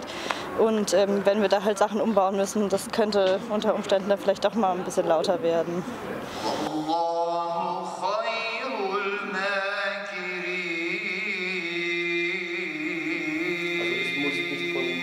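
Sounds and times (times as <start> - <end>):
man chanting prayer: 6.4 - 15.0.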